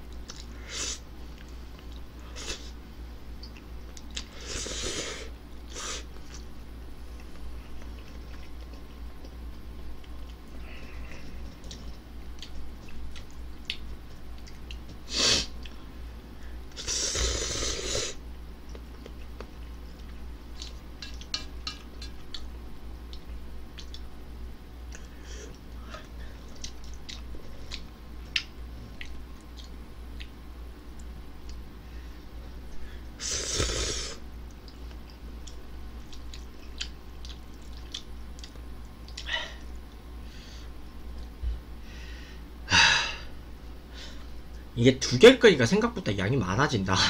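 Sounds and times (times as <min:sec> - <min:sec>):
person chewing noodles: 0:07.1 - 0:15.8, 0:16.7 - 0:24.2, 0:24.9 - 0:30.4, 0:32.7 - 0:40.0.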